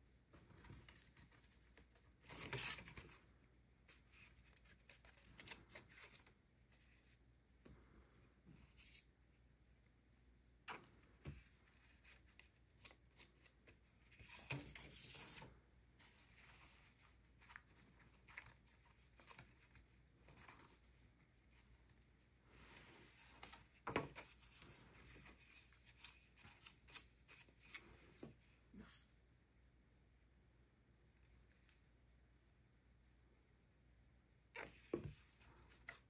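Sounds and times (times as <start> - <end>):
paper rustling: 0.3 - 3.2, 10.7 - 28.9.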